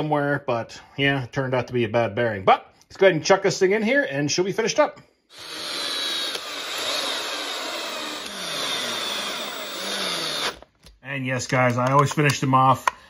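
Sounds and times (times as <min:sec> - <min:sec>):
electric screw gun running: 0:05.3 - 0:10.7.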